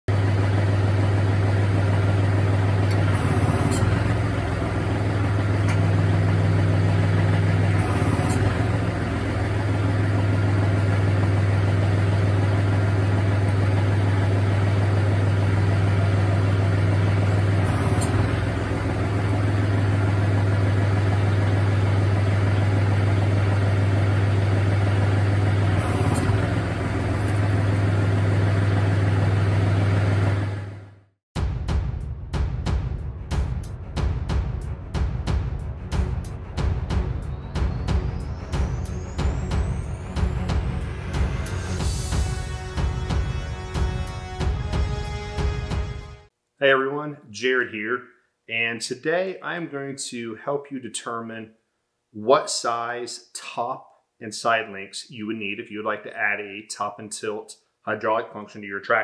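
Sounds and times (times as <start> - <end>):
tractor diesel engine idling: 0.1 - 31.0, 35.6 - 46.2.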